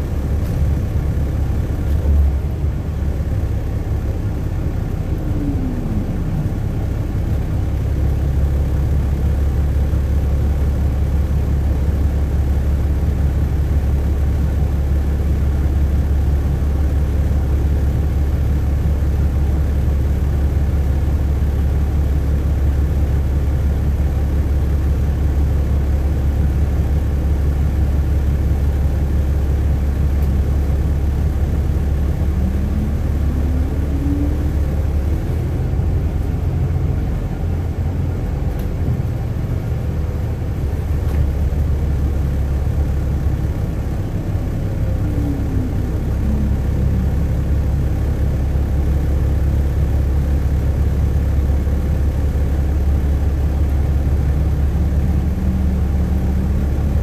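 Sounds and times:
rising and falling whine: 0.0s - 9.9s, 29.8s - 57.0s
bus engine and road rumble: 0.0s - 57.0s.

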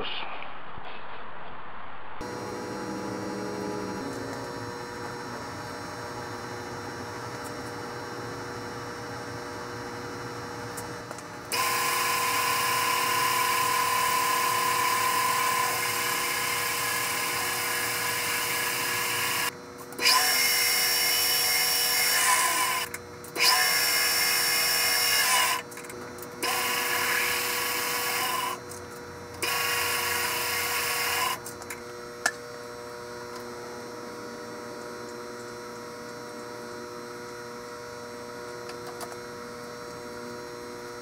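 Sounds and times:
drill press drilling metal: 11.5s - 25.7s, 26.4s - 28.6s, 29.3s - 31.4s.

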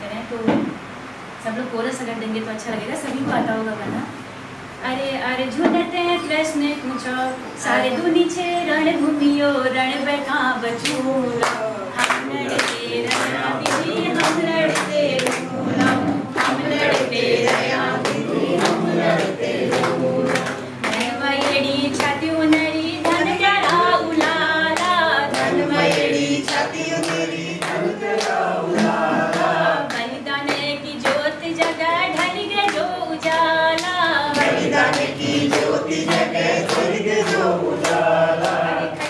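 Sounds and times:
women singing folk song: 5.5s - 39.0s
hand-clapping: 10.8s - 39.0s.

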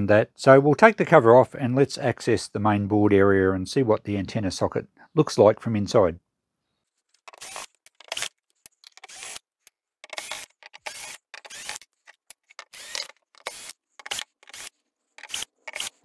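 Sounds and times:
screwdriver backing out screws: 7.2s - 9.4s, 10.0s - 16.0s.

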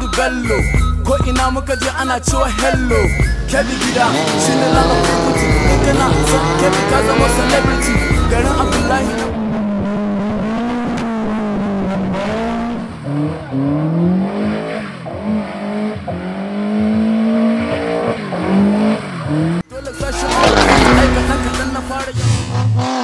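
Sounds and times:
music: 0.0s - 9.4s, 19.7s - 23.0s
engine revving: 0.0s - 23.0s
rough burst of engine noise: 2.5s - 9.3s, 20.2s - 22.8s.

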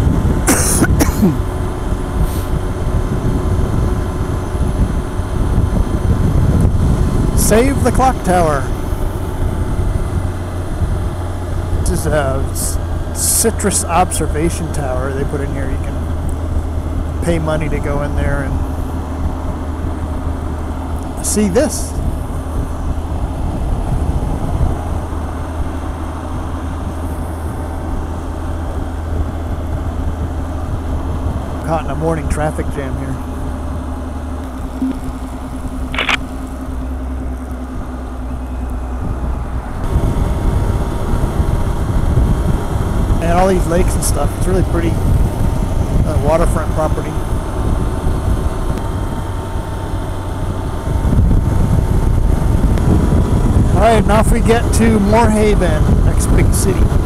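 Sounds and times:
motorcycle engine drone: 0.0s - 57.0s
road noise: 0.0s - 57.0s
wind on microphone: 2.0s - 11.9s, 18.1s - 31.6s, 37.7s - 57.0s.

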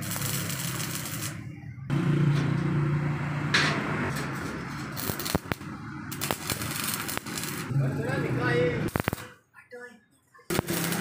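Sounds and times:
welding arc crackling: 0.0s - 1.4s, 4.4s - 9.4s, 10.5s - 11.0s.

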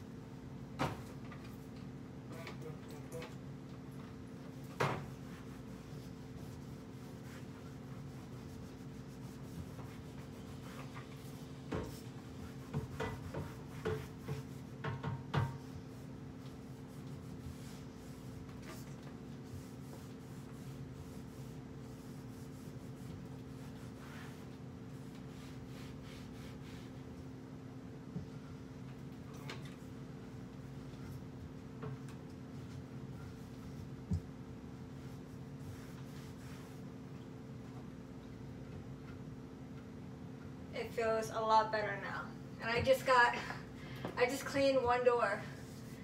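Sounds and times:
low electrical hum: 0.0s - 46.0s
cloth wiping wooden doors: 4.4s - 27.2s, 29.3s - 37.0s, 45.6s - 46.0s.

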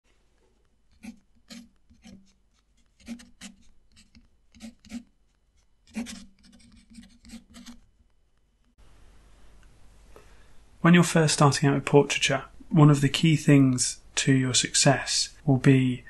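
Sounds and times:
fountain pen scratching on paper: 0.9s - 7.8s.

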